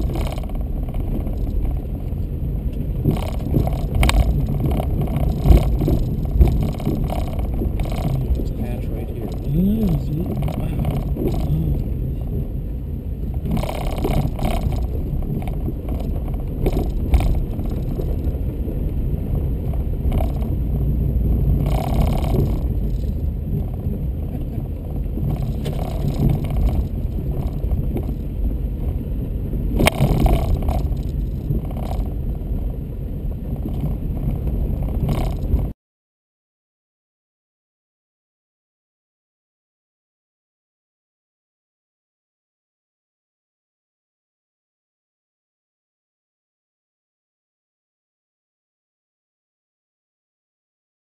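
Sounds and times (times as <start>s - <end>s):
knocks and rattles: 0.0s - 12.4s, 13.3s - 18.6s, 19.6s - 28.6s, 29.8s - 32.3s, 33.5s - 35.7s
vehicle cabin rumble: 0.0s - 35.8s.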